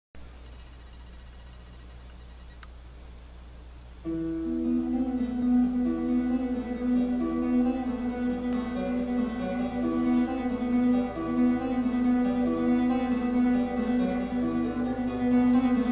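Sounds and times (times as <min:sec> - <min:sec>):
faint room hum: 0:00.2 - 0:15.9
plucked guitar music: 0:04.0 - 0:15.9.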